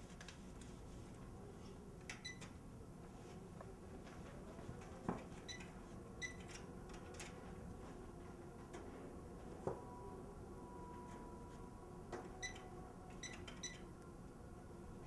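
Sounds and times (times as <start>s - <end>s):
low room noise: 0.0s - 15.0s
electronic keypad beeps: 5.5s - 6.5s, 12.4s - 13.8s.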